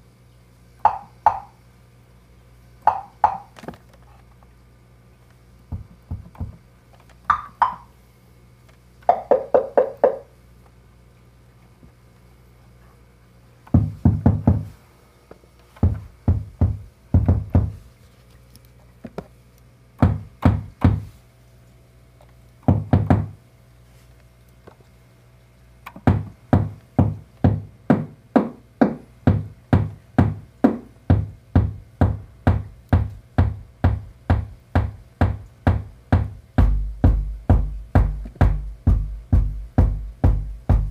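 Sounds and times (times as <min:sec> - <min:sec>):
synthesized wood-block-like hits: 0:00.8 - 0:01.5, 0:02.9 - 0:03.5, 0:07.3 - 0:07.8, 0:09.1 - 0:10.2, 0:26.1 - 0:40.9
synthesized tom-like drum hits: 0:28.8 - 0:40.9.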